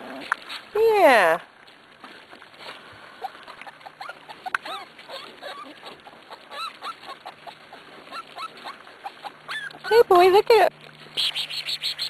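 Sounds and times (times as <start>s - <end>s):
puppies yipping and whining: 3.2s - 10.1s.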